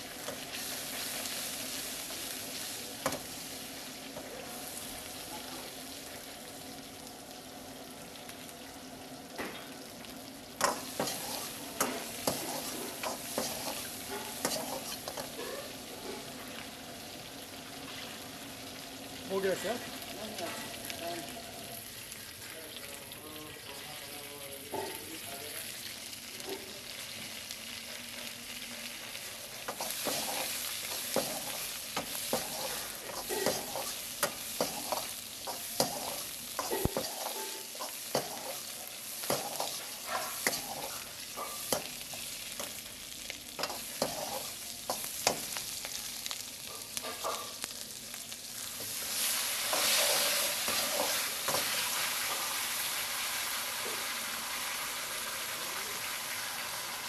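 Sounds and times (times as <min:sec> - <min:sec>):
vegetables sizzling in oil: 0:00.0 - 0:57.0
ladle scraping and clanking wok: 0:10.6 - 0:16.3, 0:29.6 - 0:42.8, 0:43.6 - 0:45.6, 0:49.2 - 0:52.4.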